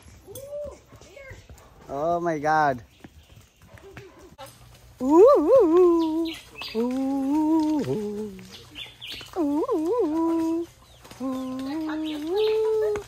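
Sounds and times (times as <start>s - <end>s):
man humming: 5.0s - 8.6s, 9.4s - 11.6s.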